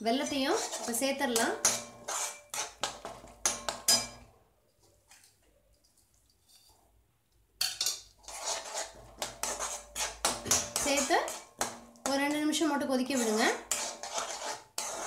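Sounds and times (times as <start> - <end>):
metal spoon scraping a metal pan: 0.0 - 4.3, 7.6 - 15.0.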